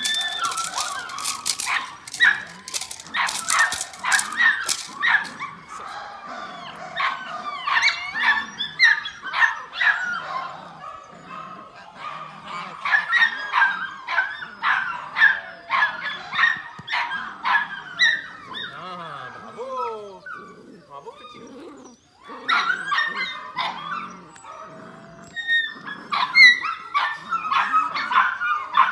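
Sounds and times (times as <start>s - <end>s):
puppy yipping and barking: 6.6s - 10.5s, 22.2s - 24.7s, 25.3s - 28.9s.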